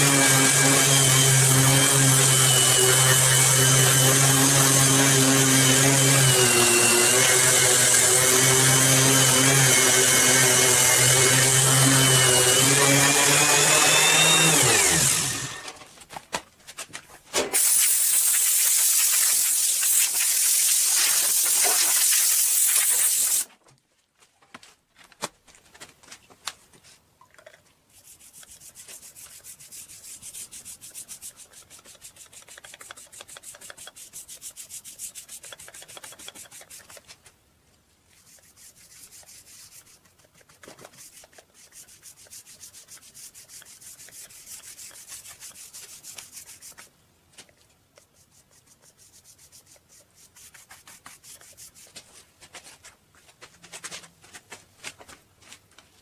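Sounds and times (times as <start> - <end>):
paintbrush scrubbing wood: 17.6 - 23.5, 27.9 - 37.2, 38.1 - 46.9, 47.9 - 52.8.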